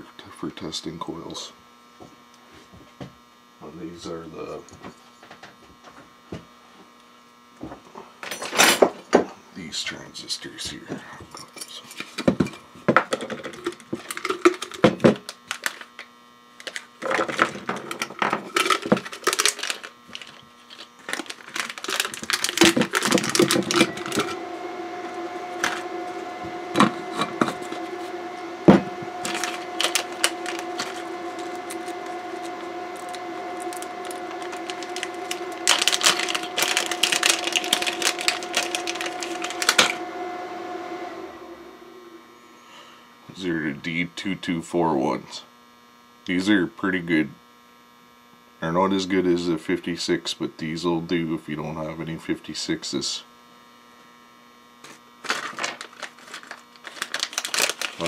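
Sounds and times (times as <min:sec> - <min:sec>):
steady hum: 0:16.6 - 0:44.6
plastic bag crinkling: 0:18.6 - 0:23.8, 0:55.3 - 0:58.0.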